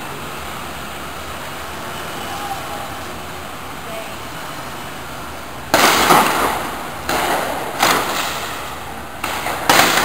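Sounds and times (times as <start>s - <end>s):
loud gunshots echoing: 5.7s - 8.4s, 9.2s - 10.0s.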